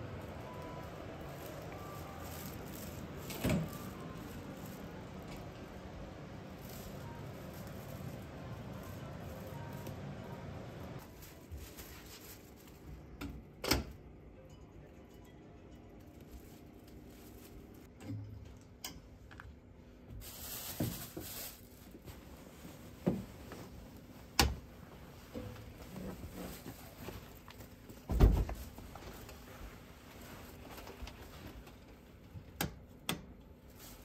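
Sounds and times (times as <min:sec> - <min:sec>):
fabric rustling: 0:00.3 - 0:13.0, 0:20.2 - 0:32.0, 0:33.6 - 0:34.0.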